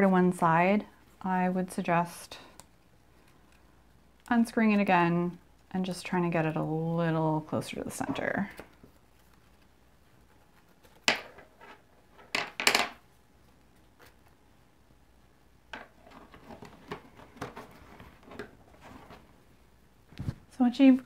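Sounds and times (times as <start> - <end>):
fabric rustling: 16.2 - 20.6.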